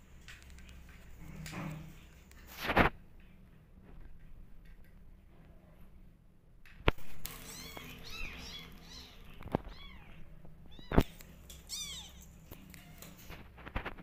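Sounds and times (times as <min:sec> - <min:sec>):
kittens mewing: 0:07.3 - 0:13.0.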